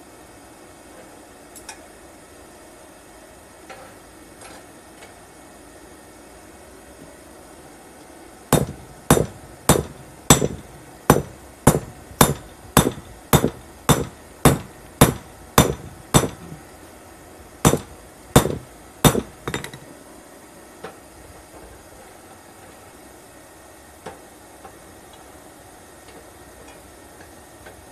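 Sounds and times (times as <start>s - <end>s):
hammer striking steel on anvil: 8.5s - 16.6s, 17.6s - 19.8s.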